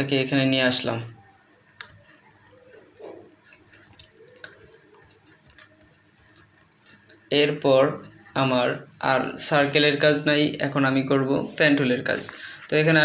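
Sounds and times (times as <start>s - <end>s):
computer mouse clicks: 1.6s - 2.8s, 3.4s - 7.0s.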